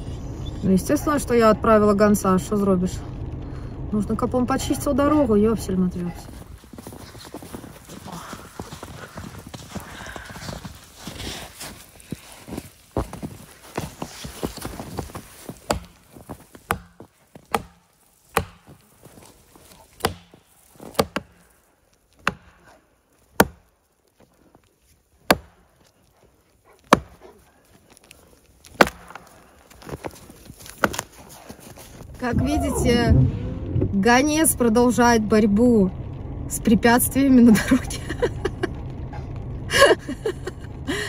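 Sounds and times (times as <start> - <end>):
branches cracking and rustling: 6.2 - 32.3
axe chopping wood: 15.6 - 21.5, 22.2 - 23.7, 25.2 - 25.8, 26.8 - 27.3, 28.6 - 30.0, 30.6 - 31.2.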